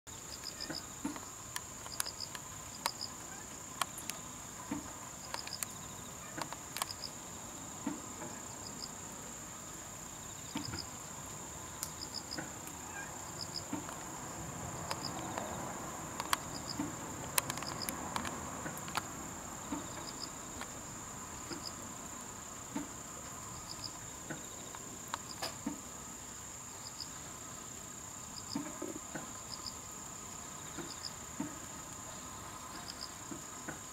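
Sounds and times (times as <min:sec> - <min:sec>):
insect high trill: 0:00.1 - 0:33.6
insect double chirp: 0:00.1 - 0:33.9
faint clicks: 0:00.4 - 0:07.1, 0:14.8 - 0:15.5, 0:16.1 - 0:19.1.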